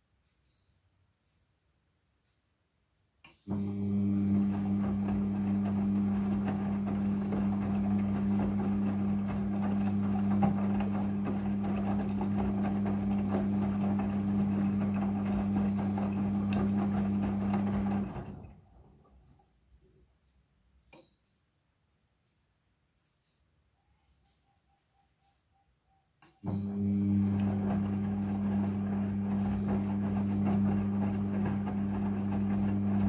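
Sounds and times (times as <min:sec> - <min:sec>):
washing machine motor hum: 0:03.5 - 0:19.5, 0:26.4 - 0:33.0
wet laundry tumbling: 0:03.6 - 0:18.8, 0:26.6 - 0:33.0.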